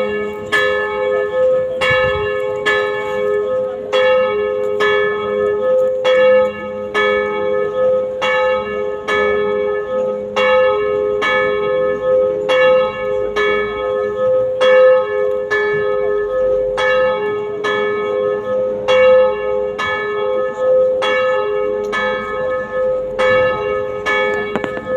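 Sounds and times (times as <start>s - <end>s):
church bells tolling: 0.0s - 24.9s.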